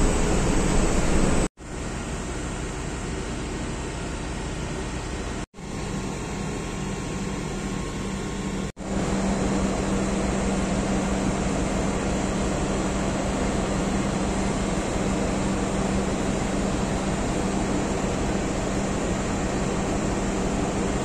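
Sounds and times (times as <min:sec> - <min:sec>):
machinery hum: 0:00.0 - 0:21.0.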